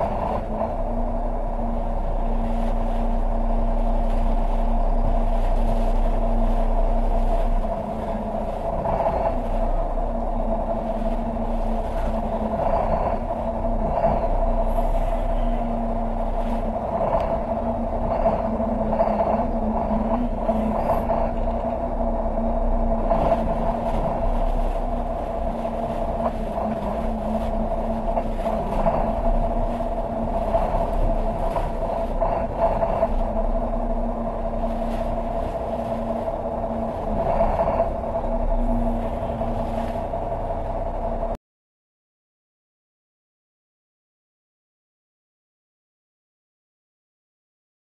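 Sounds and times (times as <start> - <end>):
boat engines idling: 0.0 - 41.4.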